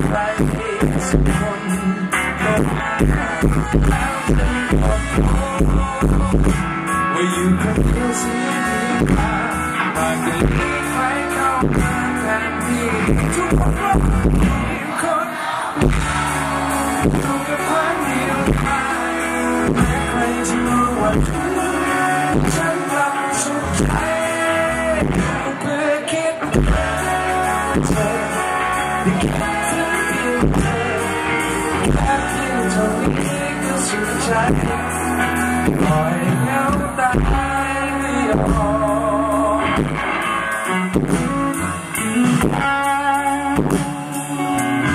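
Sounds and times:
bass guitar: 0.0s - 44.9s
electric guitar: 0.0s - 44.9s
man singing: 0.0s - 44.9s
steady beat: 15.8s - 23.0s.

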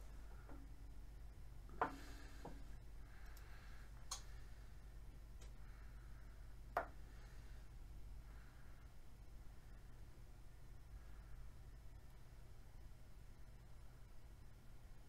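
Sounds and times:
low steady hum: 0.0s - 15.0s
light clicks and taps: 3.2s - 4.3s.

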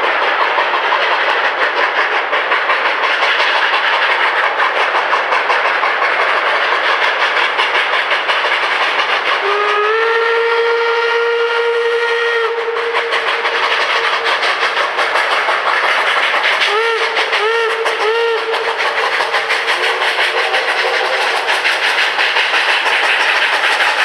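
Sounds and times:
steam locomotive exhaust chuffs: 0.0s - 24.0s
steam whistle blast: 9.4s - 14.7s, 16.6s - 21.2s.

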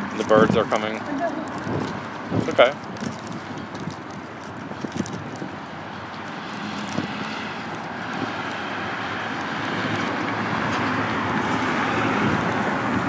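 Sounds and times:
passing vehicle engine: 4.9s - 13.0s.

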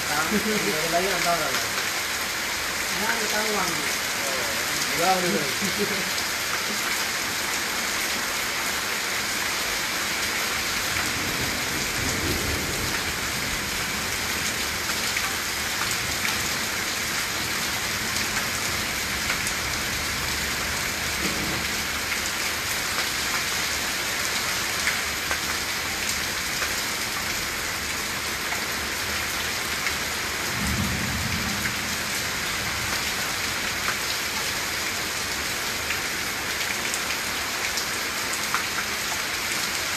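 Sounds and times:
heavy rain pouring: 0.0s - 39.9s
low thunder rumbles: 11.1s - 14.2s, 30.5s - 32.8s.

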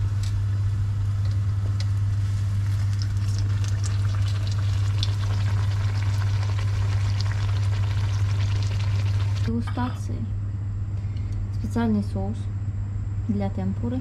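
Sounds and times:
deep-frying sizzle and crackle: 0.0s - 9.5s
low hum: 0.0s - 14.0s.

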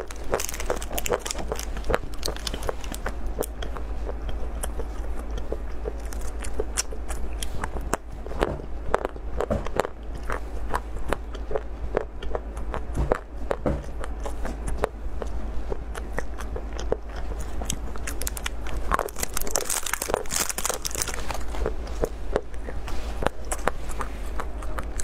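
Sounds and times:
foil wrapper crinkling: 0.0s - 3.1s, 18.0s - 22.0s
crunchy chewing of wafer bar: 0.0s - 25.0s.

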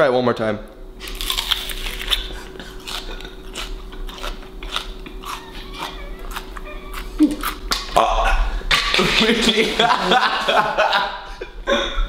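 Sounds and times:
crisp chewing crunches: 1.0s - 7.9s
biting into raw onion: 1.0s - 8.0s.

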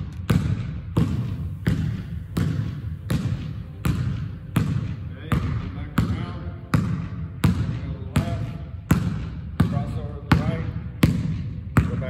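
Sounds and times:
basketball bouncing on hardwood floor: 0.0s - 12.0s.

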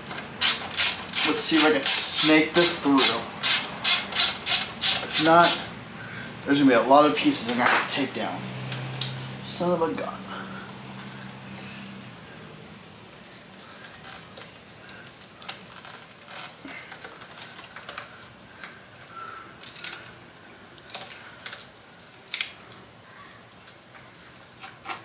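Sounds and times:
clicks and rustles of plastic parts: 13.3s - 18.8s, 19.6s - 22.8s, 23.6s - 25.0s.

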